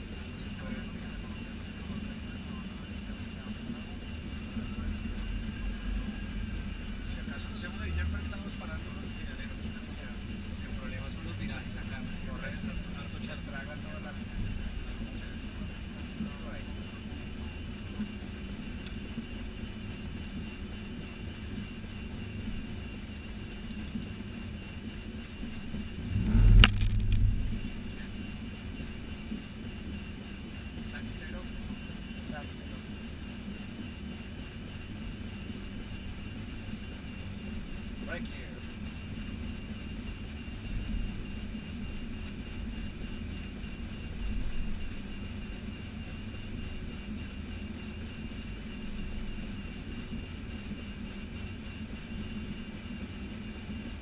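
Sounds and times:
airliner low rumble: 0.0 - 33.7
faint high whine: 0.0 - 54.0
heavy low thump: 26.0 - 28.4.

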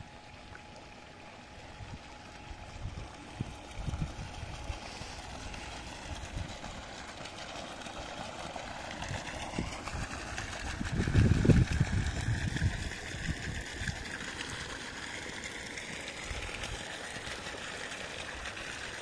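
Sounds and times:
water jet splashing onto pond: 0.3 - 19.0
wind gusts on microphone: 10.7 - 13.5.

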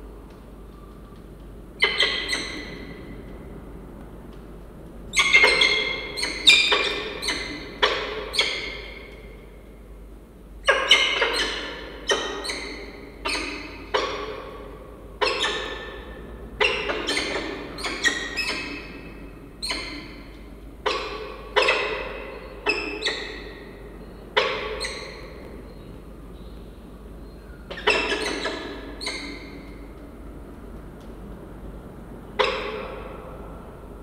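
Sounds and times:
falcons calling: 1.8 - 3.4, 5.1 - 9.3, 10.6 - 26.0, 27.5 - 30.3, 32.3 - 33.4.

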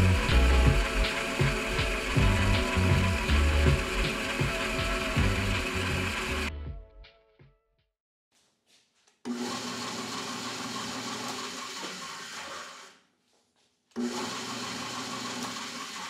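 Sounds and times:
drill press drilling wood: 0.0 - 6.5, 9.3 - 13.0, 14.0 - 16.0.

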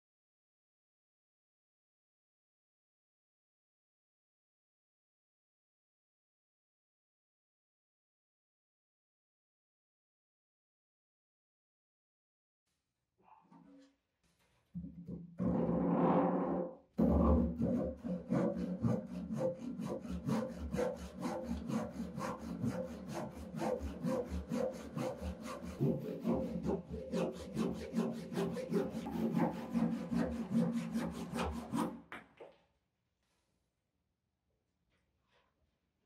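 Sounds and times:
hand saw rasping through wood: 17.0 - 32.1.

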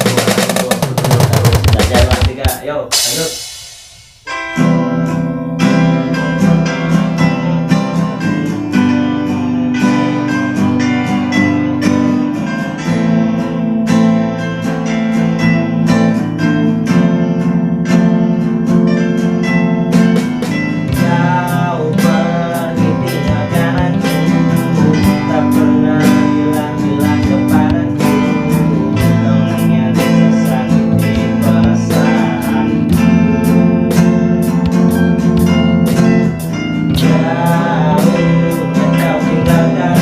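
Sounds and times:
man singing: 0.0 - 3.4, 20.9 - 33.6, 36.8 - 40.0
acoustic guitar strumming: 0.0 - 40.0.

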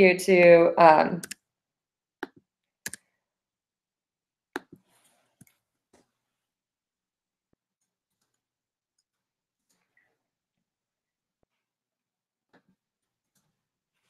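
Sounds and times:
keyboard and mouse clicks: 1.2 - 1.4.

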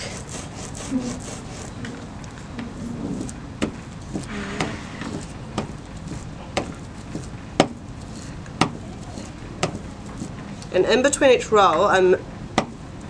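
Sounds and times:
ink roller rolling on plate: 0.0 - 7.4.

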